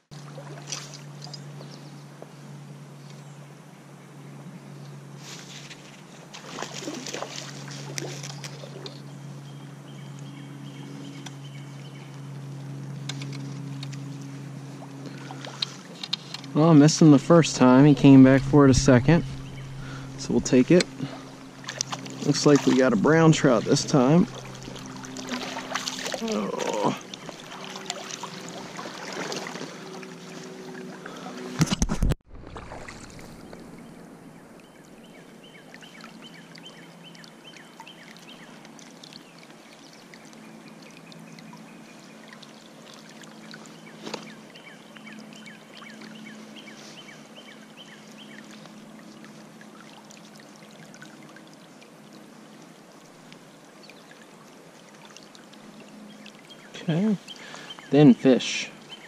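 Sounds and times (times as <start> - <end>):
water splashing: 0.0 - 1.4, 6.3 - 9.0, 13.4 - 41.4
creek water running: 0.0 - 2.6, 4.9 - 59.0.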